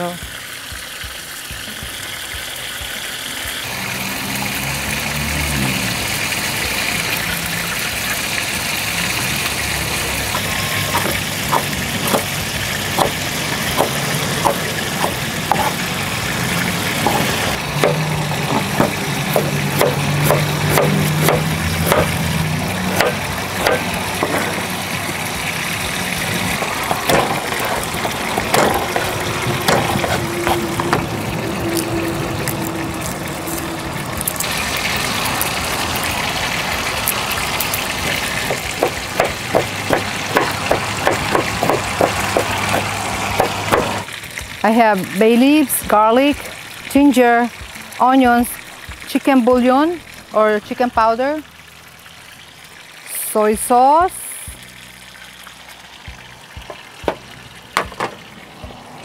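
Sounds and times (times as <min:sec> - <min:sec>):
fish sizzling in a frying pan: 0:00.0 - 0:59.0
knife chopping on plastic board: 0:10.9 - 0:12.3, 0:13.0 - 0:13.2, 0:13.8 - 0:15.8, 0:17.1 - 0:22.2, 0:22.9 - 0:24.6, 0:27.1 - 0:31.0, 0:38.5 - 0:44.0.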